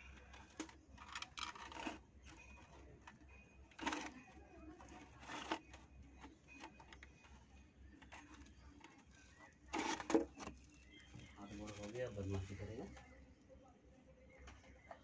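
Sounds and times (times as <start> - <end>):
kittens rustling and scratching: 0.0 - 13.2.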